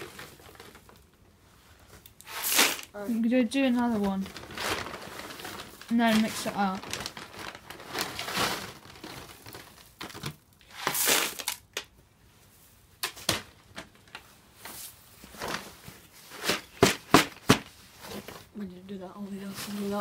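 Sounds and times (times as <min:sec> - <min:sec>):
plastic sacks rustling: 0:00.0 - 0:11.8, 0:12.5 - 0:20.0
dry feed poured into tub: 0:10.7 - 0:11.6.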